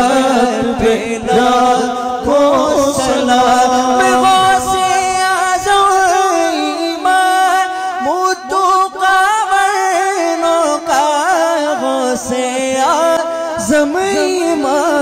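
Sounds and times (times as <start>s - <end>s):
men singing held notes: 0.0s - 5.9s.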